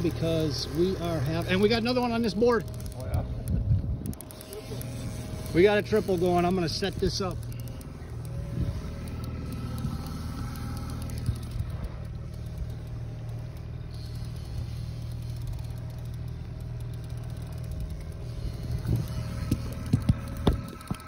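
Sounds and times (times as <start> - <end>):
boat motor droning: 0.0 - 21.0
faint steady whine: 0.0 - 21.0.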